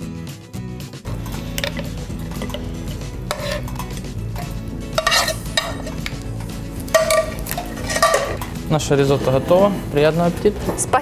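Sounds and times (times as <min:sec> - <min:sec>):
metal utensil scraping a frying pan: 0:01.6 - 0:06.2, 0:06.9 - 0:10.0.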